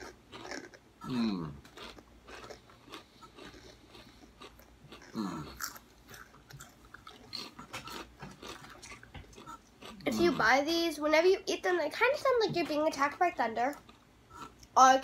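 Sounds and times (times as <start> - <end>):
potato chips crunching: 0.3 - 10.2.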